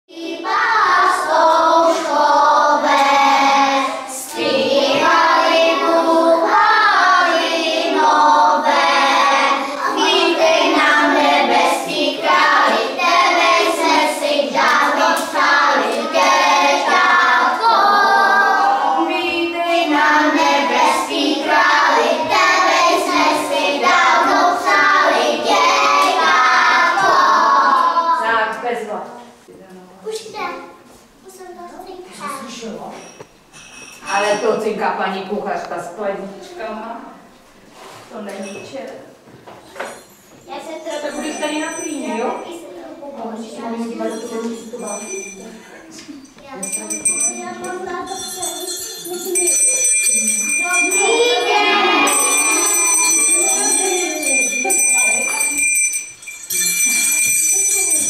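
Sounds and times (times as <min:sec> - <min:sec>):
children singing: 0:00.1 - 0:28.2, 0:50.9 - 0:54.5.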